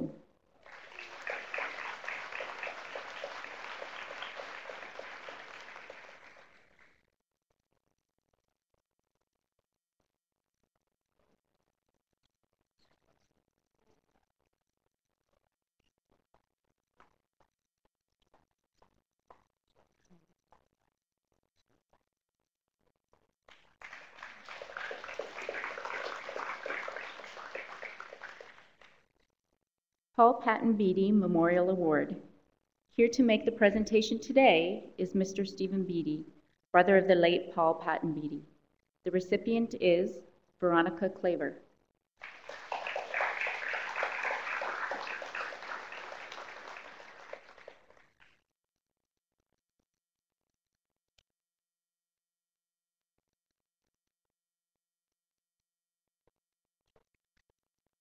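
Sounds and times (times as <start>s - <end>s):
audience applauding: 0.0s - 6.8s, 23.8s - 28.9s, 42.2s - 48.0s.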